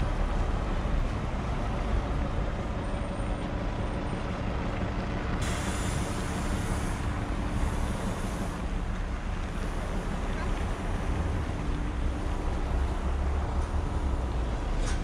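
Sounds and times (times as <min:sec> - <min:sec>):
city traffic: 0:00.0 - 0:15.0.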